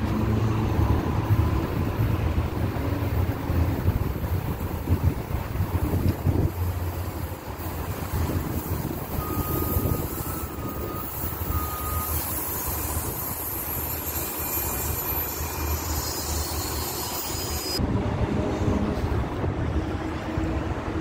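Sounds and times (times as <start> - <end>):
train rumble: 0.0 - 21.0
wind buffeting microphone: 0.1 - 11.5
faint high beeps: 9.2 - 12.3.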